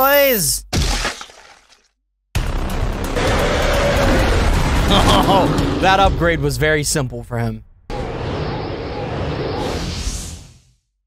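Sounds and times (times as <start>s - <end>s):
dense rushing whoosh: 3.0s - 7.0s, 7.7s - 10.8s.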